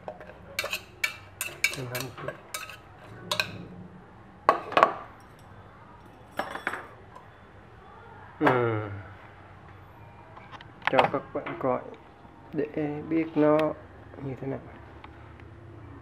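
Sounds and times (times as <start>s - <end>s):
metal chopsticks clinking on pot: 0.6s - 3.6s.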